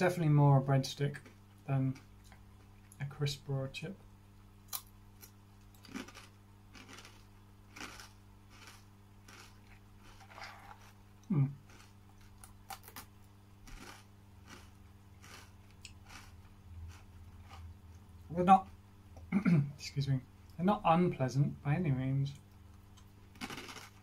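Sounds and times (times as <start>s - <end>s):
crunching snack sticks: 4.7s - 17.6s, 23.3s - 24.0s.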